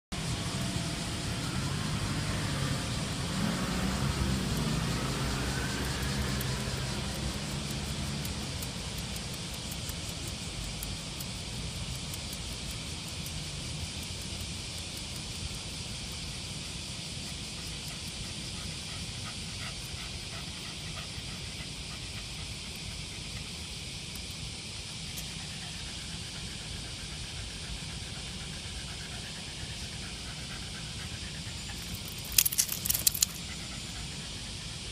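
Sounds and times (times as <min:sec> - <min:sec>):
outdoor background hiss: 0:00.1 - 0:34.9
motor vehicle passing: 0:00.2 - 0:08.9
faint light clicks: 0:31.7 - 0:33.6.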